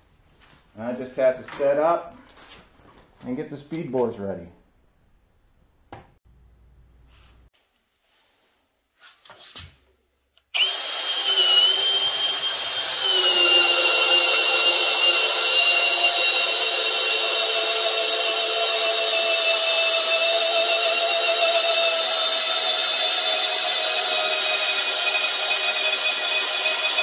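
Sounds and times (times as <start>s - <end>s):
drill motor whine: 10.6s - 27.0s.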